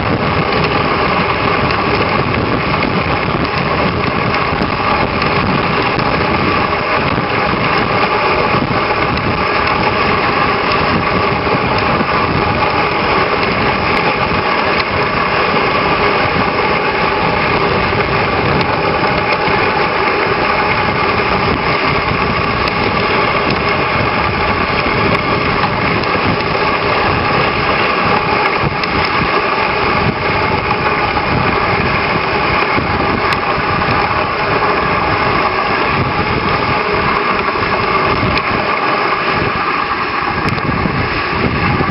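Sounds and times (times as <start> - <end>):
sled runners on snow: 0.0 - 41.9.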